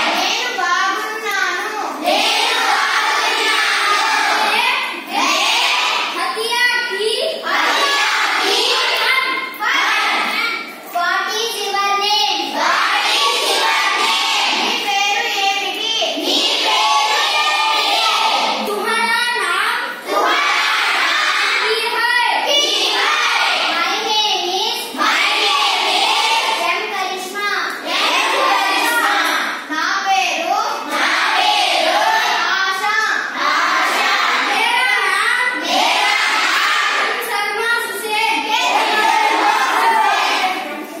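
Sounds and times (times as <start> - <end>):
children singing in unison: 0.0 - 1.0, 1.9 - 6.2, 7.4 - 10.5, 12.4 - 15.3, 16.1 - 19.1, 19.9 - 24.0, 24.9 - 26.8, 27.8 - 29.6, 30.8 - 41.0.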